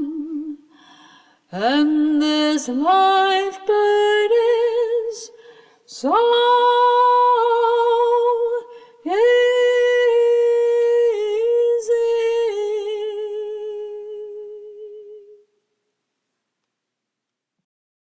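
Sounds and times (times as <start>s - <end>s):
woman humming a melody: 0.0s - 0.6s
woman breathing: 0.7s - 1.5s, 5.3s - 5.9s, 8.7s - 9.0s.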